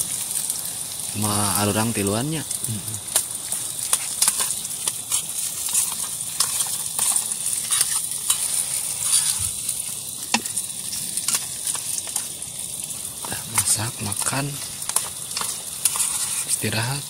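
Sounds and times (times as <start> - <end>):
gas stove hissing: 0.0 - 17.0
spoons clinking on metal tins: 3.9 - 9.4.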